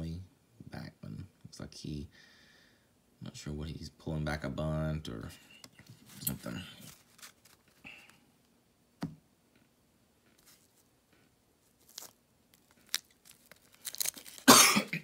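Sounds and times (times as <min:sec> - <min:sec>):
faint handling clicks and rustles: 0:05.3 - 0:08.5
wax paper wrapper tearing: 0:06.1 - 0:07.8, 0:11.6 - 0:14.5.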